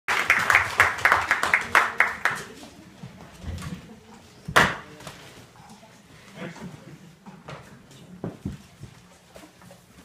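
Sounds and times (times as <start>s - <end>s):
hand clapping: 0.1s - 2.5s.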